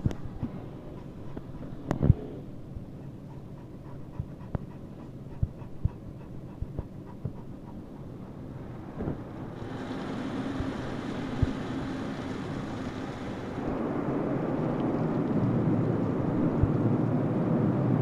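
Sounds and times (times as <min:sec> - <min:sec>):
dog panting: 0:00.0 - 0:09.5
car wash machinery hissing: 0:08.4 - 0:14.7.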